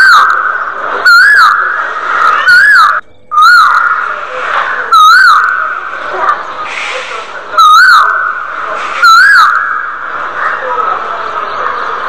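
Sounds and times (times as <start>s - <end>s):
loud warbling whistle-like tone: 7.6s - 10.0s.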